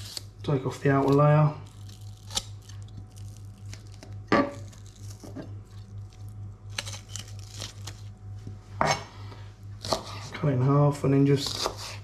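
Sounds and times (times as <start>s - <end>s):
onion layer rustling and tearing: 0.0s - 8.4s
steady low hum: 0.0s - 12.0s.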